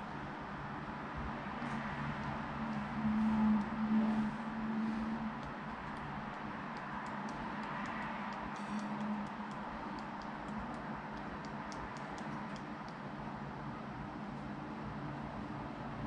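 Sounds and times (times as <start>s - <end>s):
steady background hum: 0.0s - 16.0s
smartphone keyboard typing clicks: 5.4s - 13.0s.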